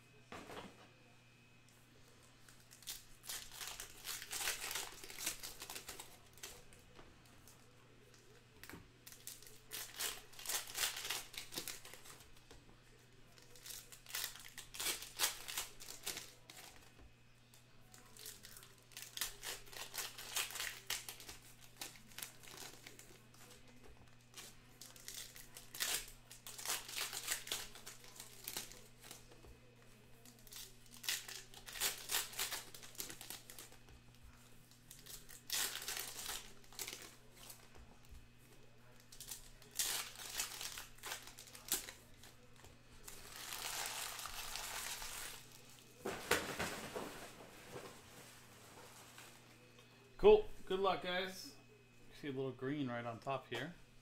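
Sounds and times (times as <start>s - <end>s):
foil wrappers tearing and crinkling: 2.4s - 6.8s, 8.0s - 12.4s, 13.2s - 16.9s, 17.9s - 29.4s, 30.2s - 33.9s, 34.7s - 37.7s, 38.8s - 47.9s.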